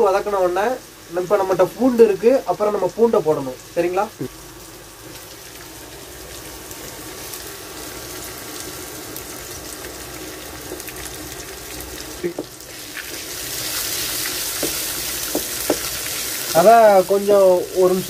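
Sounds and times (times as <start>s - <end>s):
onions sizzling in hot oil: 0.0s - 18.0s
wooden spatula knocking on pan: 12.2s - 12.6s, 14.5s - 16.0s.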